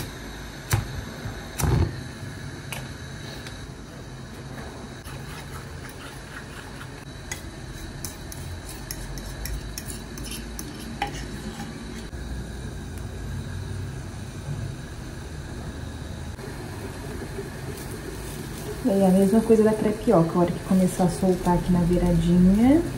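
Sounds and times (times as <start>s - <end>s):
utensil scraping and tapping bowl: 5.0s - 12.1s
frying sizzle: 12.1s - 22.9s.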